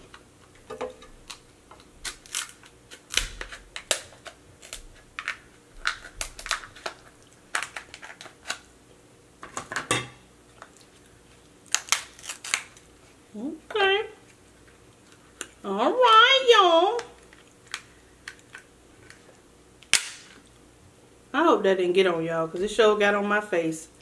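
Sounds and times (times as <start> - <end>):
scissors cracking crab shell: 1.2 - 8.7, 11.7 - 12.8, 17.0 - 19.2, 19.8 - 20.4.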